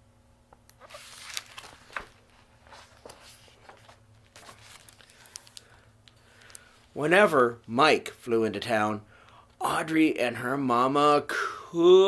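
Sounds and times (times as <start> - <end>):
book pages turning: 0.8 - 6.9.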